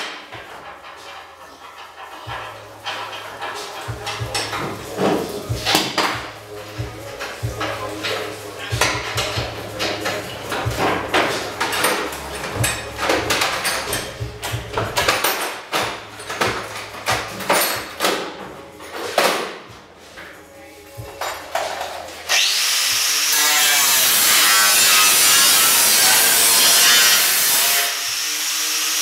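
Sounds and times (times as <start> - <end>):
hand tools knocking on sheet metal: 0.0 - 19.7.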